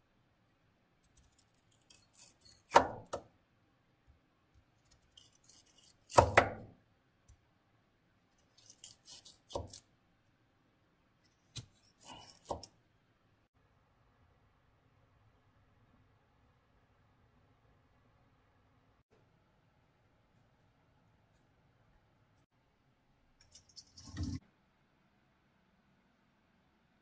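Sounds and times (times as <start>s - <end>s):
knife crunching through carrot: 8.4s - 9.8s.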